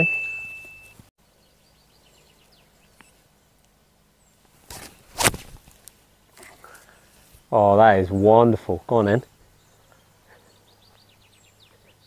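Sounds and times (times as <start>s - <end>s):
bright chime: 0.0s - 1.0s
faint birdsong: 0.7s - 5.2s, 5.8s - 12.0s.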